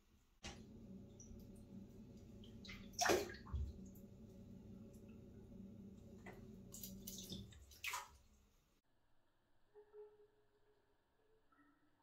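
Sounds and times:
faint low hum: 0.1s - 8.8s
water splashes and drips: 0.4s - 8.6s.

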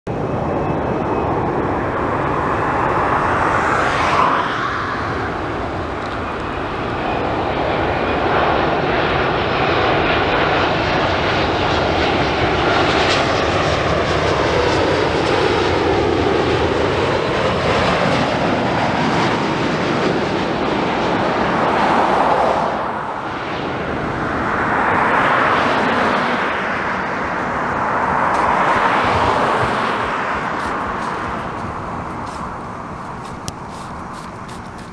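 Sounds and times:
jet engine roar: 0.1s - 34.9s
slow sweeping tones: 0.2s - 8.9s, 21.4s - 34.9s.

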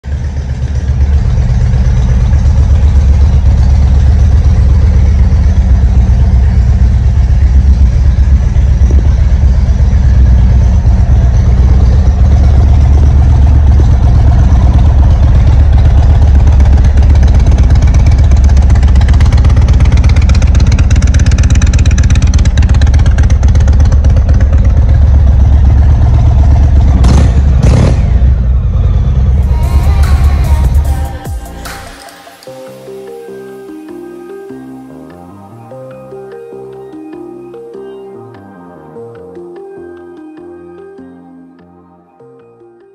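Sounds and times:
motorcycle engine idling: 0.0s - 32.0s.

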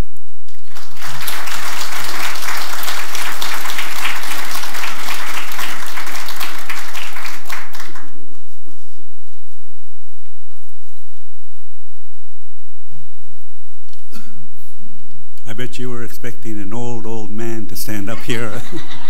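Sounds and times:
audience applauding: 0.5s - 8.3s.

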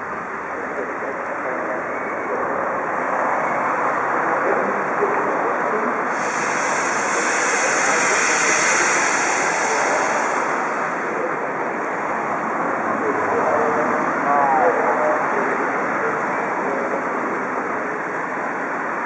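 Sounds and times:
steam locomotive venting steam: 6.0s - 12.5s
higher steam hiss: 6.1s - 12.2s.

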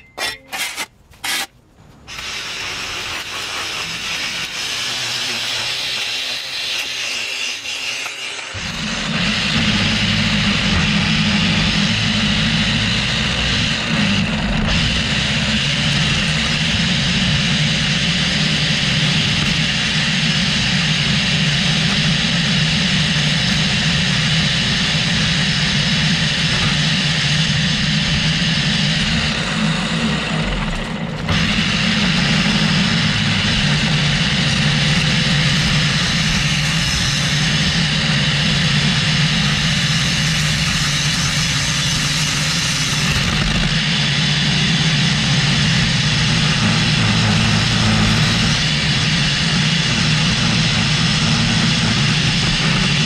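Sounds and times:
string trimmer running: 2.1s - 53.0s
trimmer line cutting grass: 2.1s - 53.0s.

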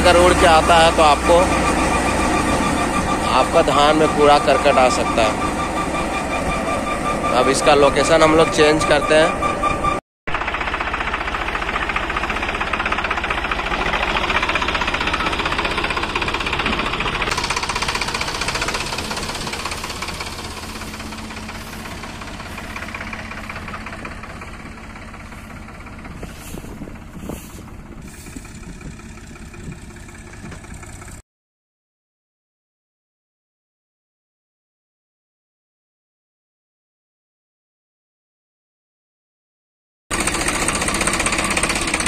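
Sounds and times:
diesel tractor engine clattering: 0.0s - 31.2s, 40.1s - 42.0s.

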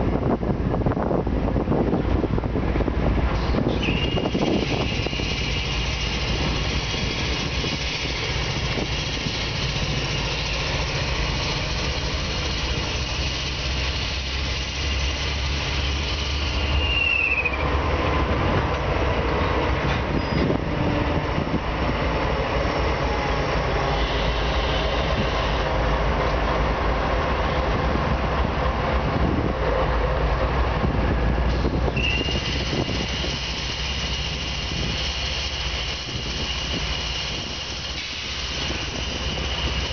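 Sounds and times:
diesel locomotive engine rumble: 0.0s - 39.9s
high thin squeal: 3.4s - 17.7s, 20.0s - 20.6s, 31.6s - 39.9s.

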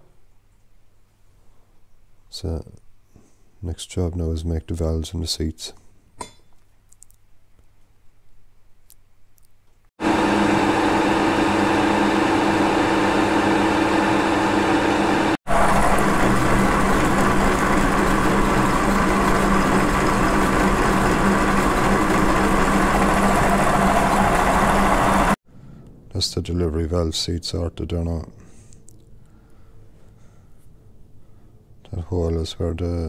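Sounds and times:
milling machine motor running: 10.0s - 25.4s
metal cutting noise: 14.5s - 25.4s.

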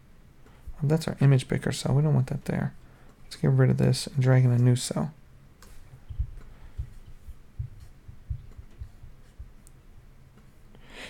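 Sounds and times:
low thumps at a desk: 6.0s - 9.6s.

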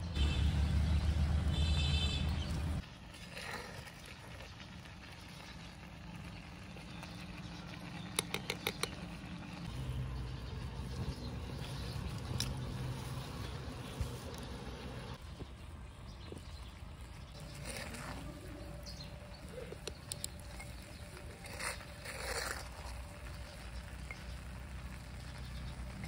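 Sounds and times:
metal spoon stirring in clay pot: 2.5s - 9.8s, 17.2s - 26.0s.

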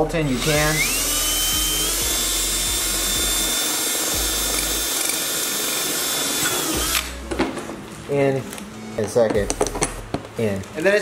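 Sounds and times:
cordless drill motor whine: 0.3s - 7.1s.

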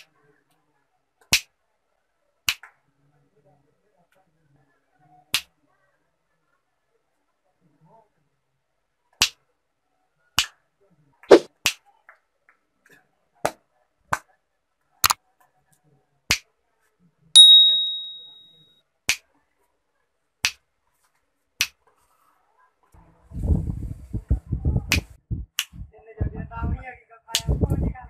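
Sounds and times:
high ringing ping: 17.4s - 18.5s
finger snaps: 24.9s - 25.8s.

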